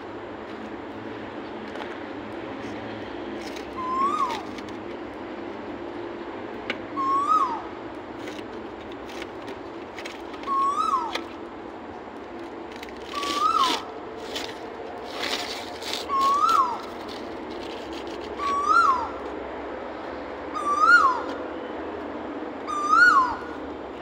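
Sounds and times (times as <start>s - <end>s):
bird whistled call: 3.7s - 4.6s, 7.0s - 7.7s, 10.4s - 11.2s, 13.0s - 13.9s, 16.0s - 17.0s, 18.4s - 19.2s, 20.5s - 21.4s, 22.7s - 23.6s
rustling bursts: 12.8s - 18.4s.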